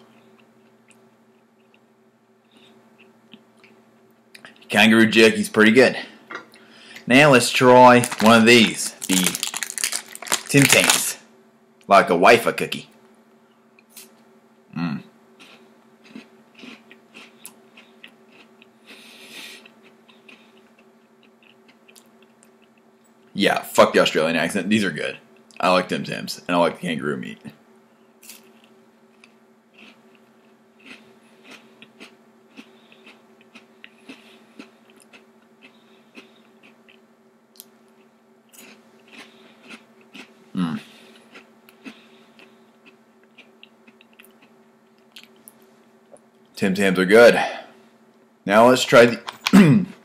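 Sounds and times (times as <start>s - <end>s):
faint chewing and crunching: 0.0s - 4.8s, 5.5s - 11.2s, 15.4s - 23.4s, 28.2s - 46.6s.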